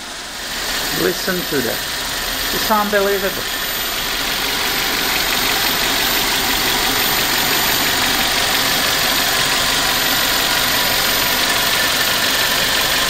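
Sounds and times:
car engine idling: 0.0 - 13.0
fuel injectors clicking: 0.4 - 13.0.

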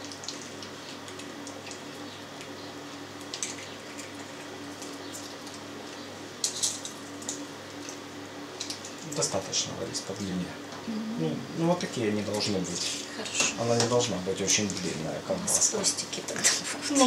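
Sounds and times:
wet squishing crackles: 0.0 - 6.1
steady low hum: 0.0 - 17.0.

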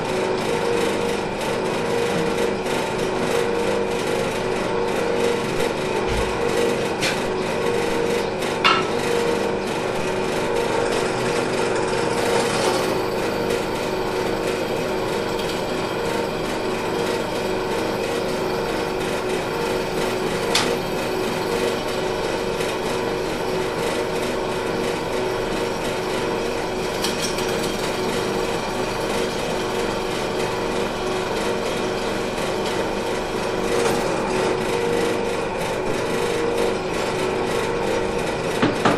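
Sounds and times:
drill press motor humming: 0.0 - 38.9.

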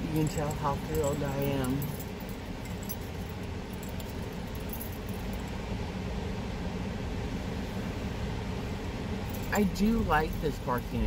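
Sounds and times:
faint metallic clinks: 0.0 - 5.6, 9.3 - 11.0
car cabin noise: 0.0 - 5.8.

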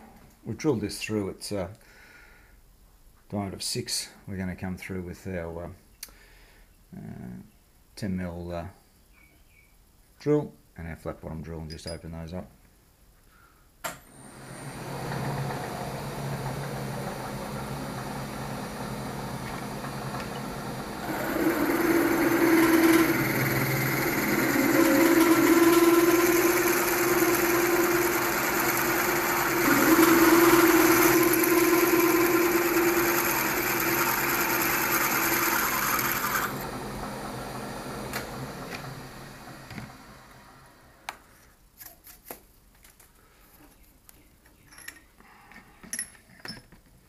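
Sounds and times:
milling machine spindle running: 14.4 - 40.5
drill cutting into metal: 19.6 - 36.8.

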